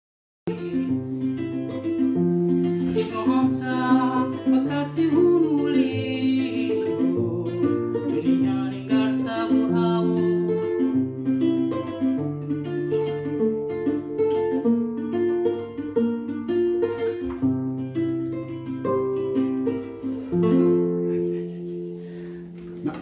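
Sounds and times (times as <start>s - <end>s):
classical guitar plucked: 0.5s - 23.0s
man singing: 2.4s - 11.0s.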